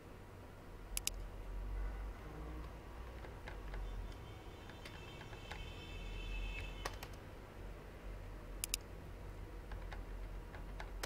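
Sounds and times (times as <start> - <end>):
low steady hum: 0.0 - 11.0
keyboard and mouse clicks: 1.0 - 1.3, 6.6 - 7.2, 8.6 - 8.9, 9.6 - 11.0.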